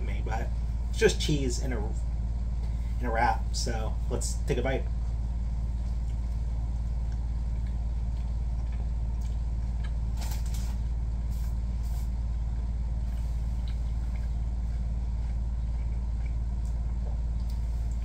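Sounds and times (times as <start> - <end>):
steady low hum: 0.0 - 18.0
person chewing food: 5.0 - 18.0.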